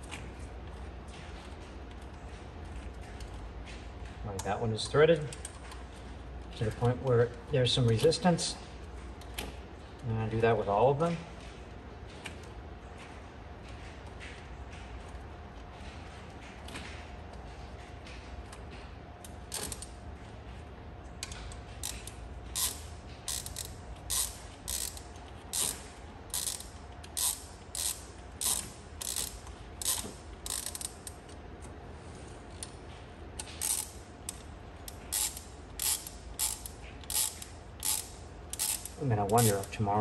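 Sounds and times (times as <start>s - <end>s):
ratchet wrench clicking: 19.5s - 19.9s, 21.2s - 31.1s, 33.4s - 39.7s.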